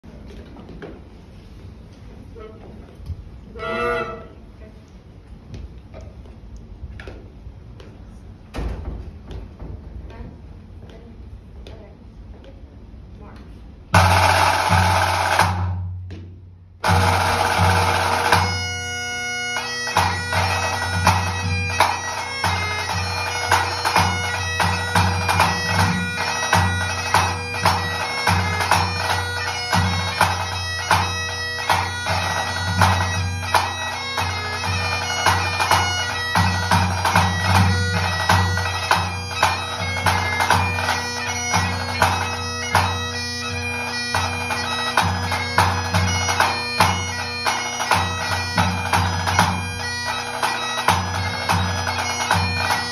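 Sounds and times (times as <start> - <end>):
bagpipe playing over drones: 3.5 - 4.4, 16.8 - 52.9
low tenor drum beats: 13.9 - 16.1, 16.8 - 18.6
snare drum roll: 14.0 - 15.8.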